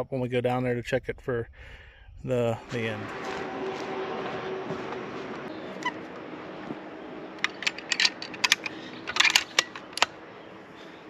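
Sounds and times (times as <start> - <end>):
rifle bolt metallic clicks: 7.4 - 10.2.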